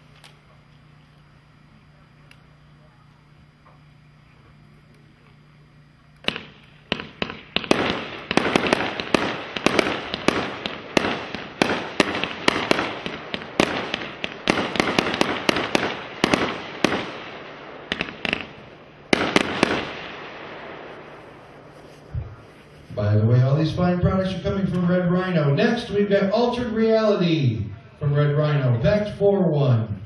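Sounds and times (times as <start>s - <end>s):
fireworks shots and bursts: 6.2s - 29.6s.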